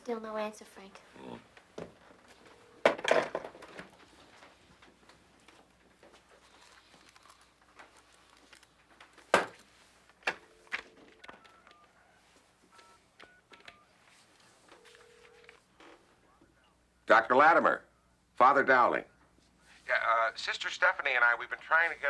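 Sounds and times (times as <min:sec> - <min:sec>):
steady phone line tone: 0:02.2 - 0:04.0, 0:10.2 - 0:16.8.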